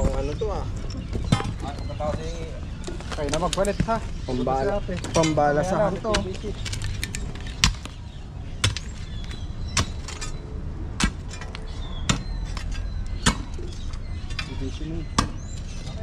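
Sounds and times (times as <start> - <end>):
digging tool striking hard ground: 9.7 - 10.4, 11.0 - 16.0.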